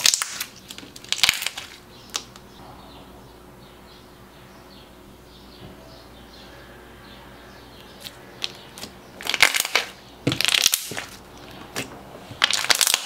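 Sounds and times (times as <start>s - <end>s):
slime crackling bursts: 0.0s - 2.2s, 8.0s - 13.0s.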